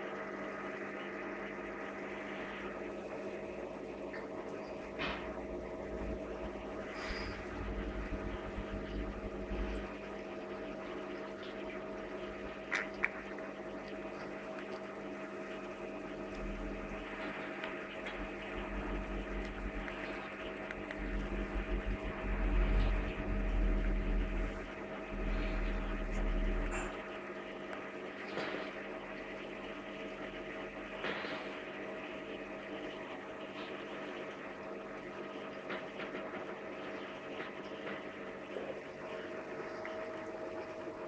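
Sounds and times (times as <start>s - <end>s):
aquarium pumps humming: 0.0s - 41.0s
low rumble: 5.7s - 10.2s, 16.2s - 27.0s.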